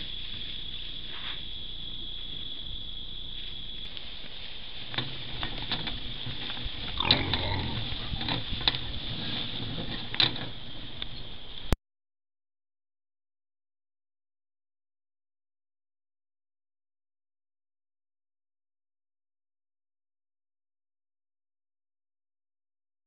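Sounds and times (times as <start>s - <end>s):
steady high-pitched whine: 0.0s - 11.8s
pigs grunting and snuffling: 6.2s - 10.2s.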